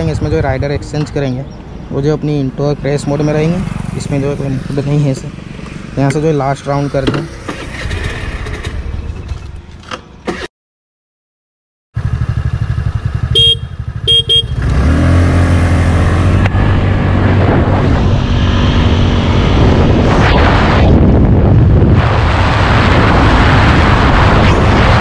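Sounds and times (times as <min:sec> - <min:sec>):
scooter engine: 0:02.8 - 0:06.1, 0:07.2 - 0:10.5, 0:12.0 - 0:16.6
horn beeping: 0:13.2 - 0:14.7
wind noise: 0:16.3 - 0:25.0.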